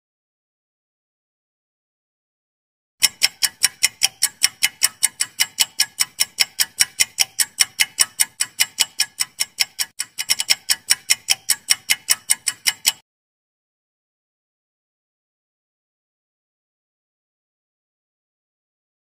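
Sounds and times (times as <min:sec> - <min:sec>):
rapid clock-like ticking: 0:03.0 - 0:13.0.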